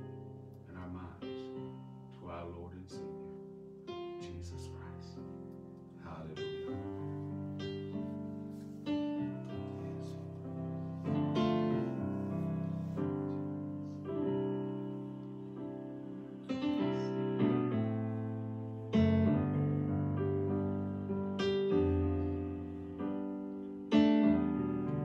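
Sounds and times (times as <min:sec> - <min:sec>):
slow piano chords: 0:00.0 - 0:25.0.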